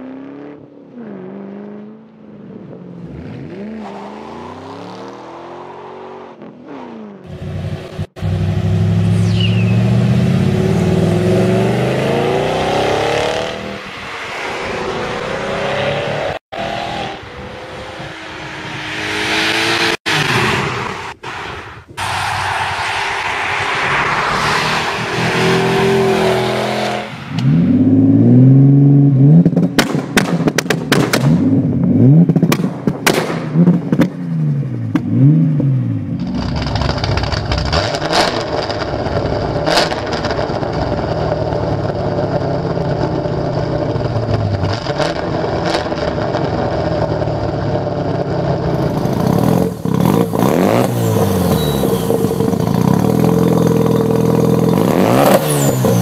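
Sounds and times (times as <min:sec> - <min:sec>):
car accelerating away: 0:08.2 - 0:13.8, 0:37.4 - 0:56.0
engine revving with exhaust cracks: 0:36.2 - 0:42.0, 0:48.6 - 0:56.0
rotary engine revving: 0:42.7 - 0:56.0.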